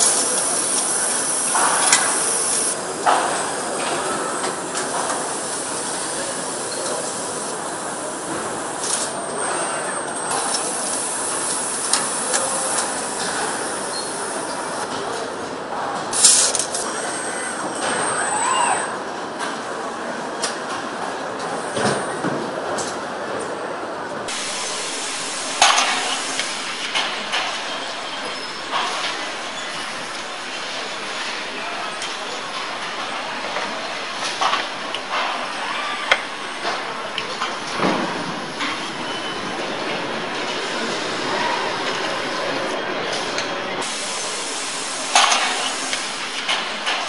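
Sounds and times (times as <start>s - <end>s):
short air hisses: 16.2s - 17.4s, 24.3s - 27.7s, 43.8s - 46.8s
machinery mechanical din: 24.3s - 40.6s.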